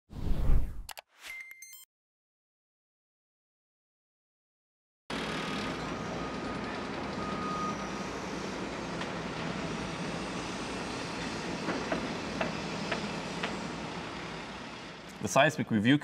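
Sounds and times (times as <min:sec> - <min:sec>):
heavy machinery and trucks rumbling: 0:05.1 - 0:15.5.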